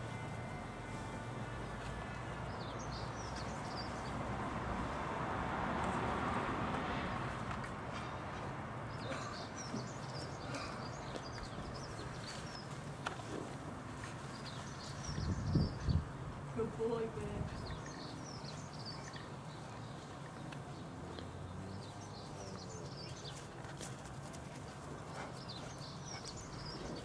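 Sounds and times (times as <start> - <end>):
small birds chirping: 8.9 - 13.3, 14.0 - 16.1, 16.8 - 24.1, 24.8 - 27.0.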